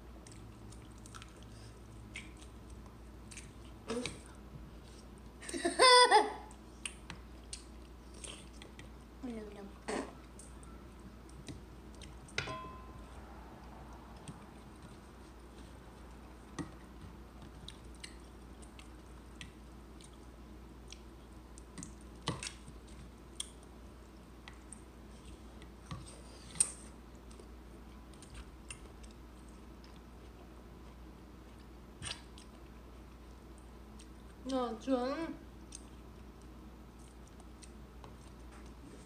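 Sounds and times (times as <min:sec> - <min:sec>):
soft chewing: 0:00.0 - 0:05.5, 0:06.5 - 0:12.4, 0:13.0 - 0:34.7, 0:35.4 - 0:39.0
fork tapping a bowl: 0:12.4 - 0:13.0.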